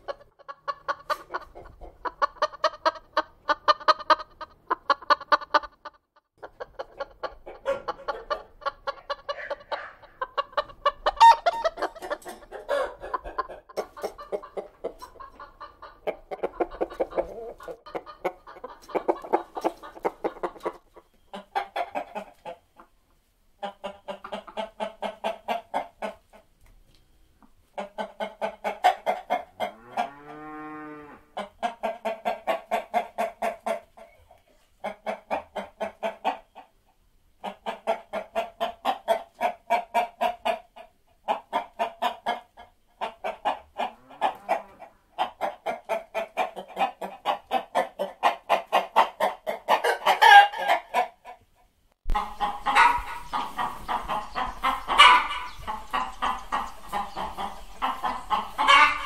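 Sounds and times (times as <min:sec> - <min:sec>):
hens clucking: 0:00.0 - 0:26.8, 0:27.4 - 0:59.0
hen squawk: 0:09.3 - 0:10.2.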